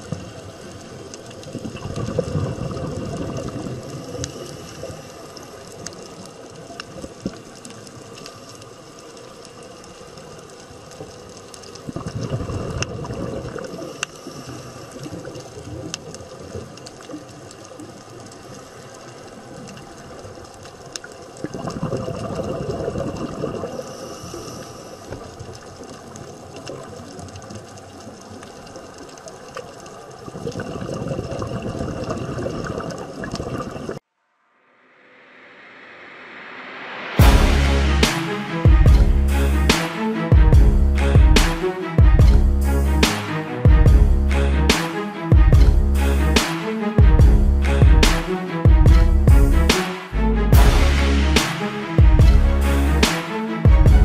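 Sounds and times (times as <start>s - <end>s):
steady underwater hiss: 0.0s - 31.2s
diver's exhaled bubbles rumbling: 1.5s - 4.2s, 11.8s - 13.8s, 21.4s - 23.8s, 30.3s - 34.0s
faint clicks: 3.1s - 13.0s, 13.6s - 21.6s, 24.2s - 30.4s.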